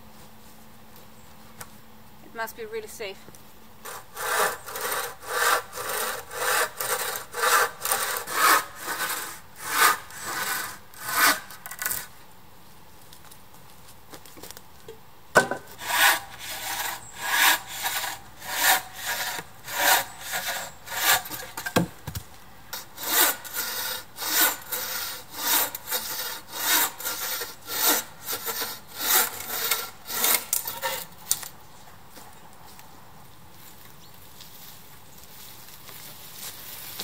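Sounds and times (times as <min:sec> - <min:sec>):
bow saw rasping through wood: 0:03.8 - 0:12.1, 0:15.7 - 0:21.9, 0:22.8 - 0:31.1.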